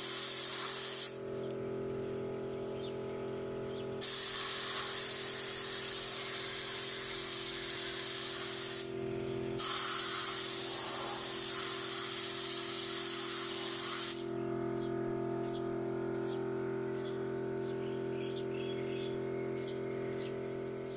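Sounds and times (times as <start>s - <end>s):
paint spray gun hissing: 0.0s - 1.2s, 4.0s - 9.0s, 9.6s - 14.3s
steady low hum: 0.0s - 20.9s.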